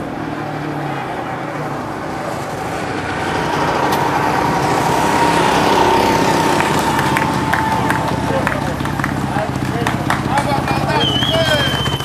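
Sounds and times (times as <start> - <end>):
motocross bike engine running: 2.5 - 12.0.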